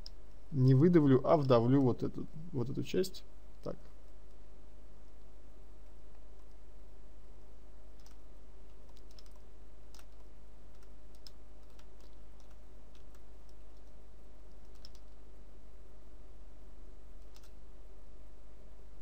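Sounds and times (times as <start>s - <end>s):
steady low hum: 0.0s - 19.0s
mouse and keyboard clicks: 8.0s - 8.2s, 8.8s - 13.9s, 14.5s - 15.2s, 17.2s - 17.6s.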